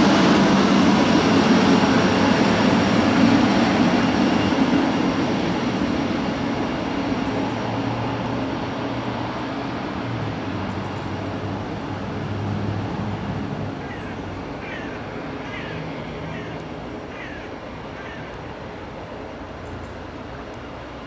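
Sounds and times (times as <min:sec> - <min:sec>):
train hum and rumble: 0:00.0 - 0:21.0
high falling animal calls: 0:13.8 - 0:18.3.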